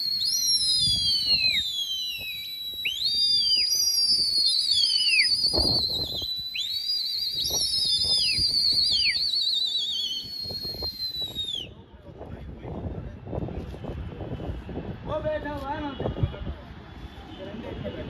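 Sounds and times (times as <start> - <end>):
shrill whistling: 0.0 - 11.7.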